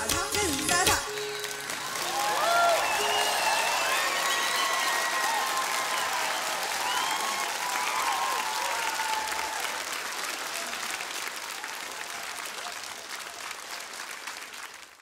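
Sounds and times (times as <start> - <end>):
audience applauding: 0.0 - 15.0
shouts and whoops: 1.8 - 9.8.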